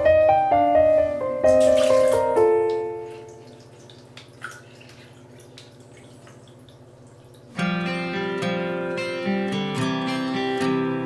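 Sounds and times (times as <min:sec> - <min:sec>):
acoustic guitar music: 0:00.0 - 0:03.4, 0:07.5 - 0:11.0
low steady hum: 0:00.0 - 0:08.1
liquid drip: 0:01.5 - 0:07.7.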